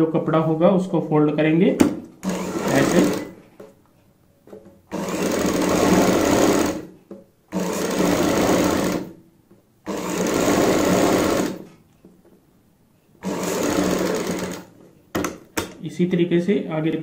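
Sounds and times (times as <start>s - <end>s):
sewing machine stitching: 2.2s - 3.4s, 4.9s - 6.9s, 7.5s - 9.2s, 9.8s - 11.8s, 13.2s - 14.8s.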